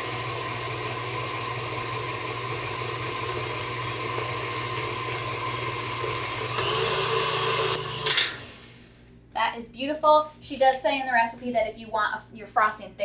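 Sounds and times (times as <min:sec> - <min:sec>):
stand mixer running: 0:00.0 - 0:08.8.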